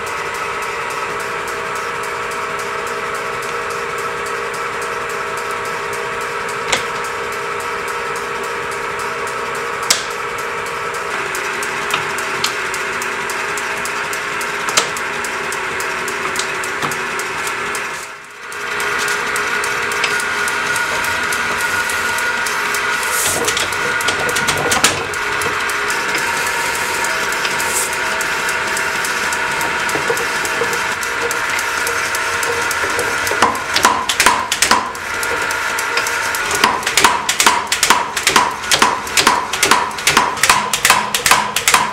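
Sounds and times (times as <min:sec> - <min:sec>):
power hammer motor whine: 0:09.2 - 0:40.1.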